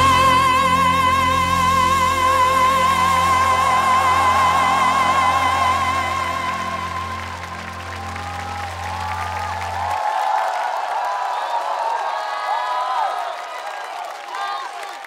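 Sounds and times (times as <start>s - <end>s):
woman singing a high held note: 0.0s - 7.9s.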